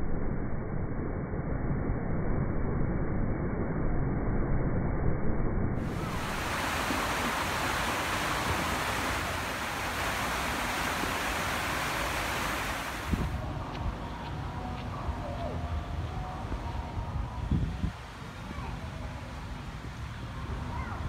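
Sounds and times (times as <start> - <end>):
water cascading into a pool: 5.8 - 13.4.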